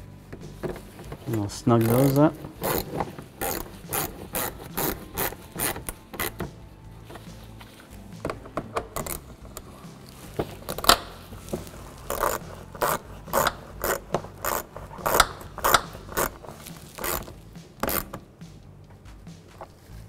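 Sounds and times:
hand ratchet clicking: 0:00.6 - 0:06.5, 0:08.2 - 0:09.8, 0:10.4 - 0:18.3.

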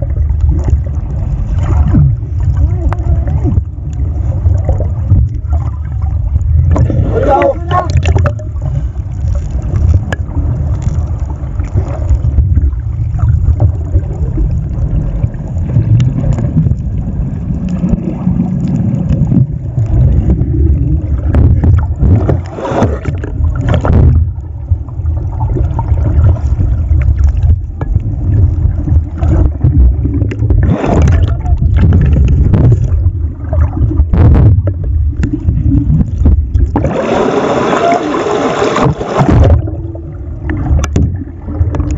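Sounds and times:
knocks and splashes: 0:00.0 - 0:03.8, 0:04.4 - 0:08.6, 0:17.7 - 0:41.9
muffled underwater rumble and sloshing: 0:00.0 - 0:41.9.

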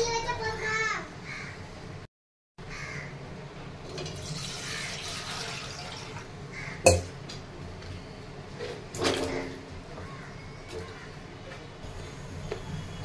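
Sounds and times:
water pouring into metal pot: 0:03.9 - 0:06.3
sharp knock: 0:06.9 - 0:07.2.

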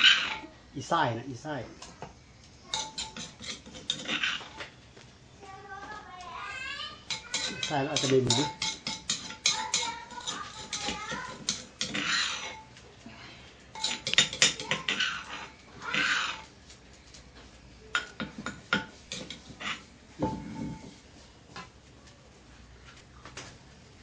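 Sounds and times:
dishes and utensils clinking: 0:02.7 - 0:04.7, 0:07.0 - 0:12.8, 0:13.7 - 0:16.5, 0:17.9 - 0:21.0.

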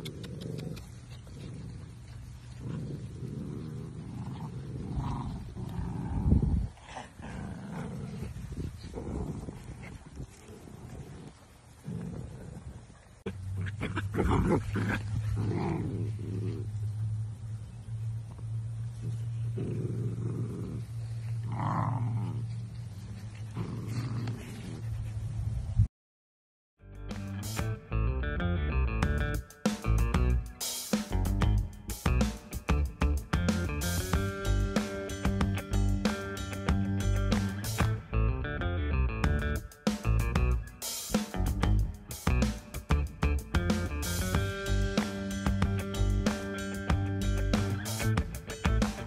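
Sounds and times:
puppy growling: 0:00.0 - 0:16.8, 0:19.0 - 0:22.6, 0:23.4 - 0:24.9
steady low hum: 0:13.3 - 0:25.4.

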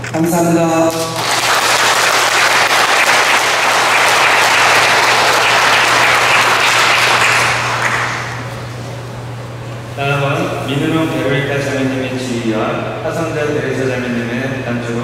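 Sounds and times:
congregation applauding: 0:00.9 - 0:08.5.

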